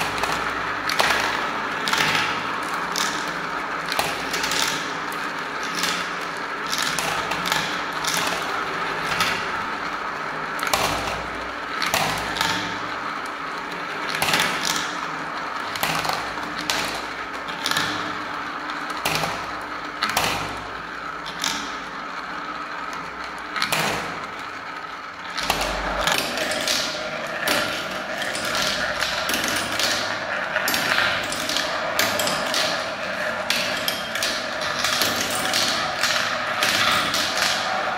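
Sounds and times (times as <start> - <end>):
marbles rolling in plastic bowl: 0.0 - 11.1, 25.3 - 37.9
marbles clicking together: 25.3 - 37.9.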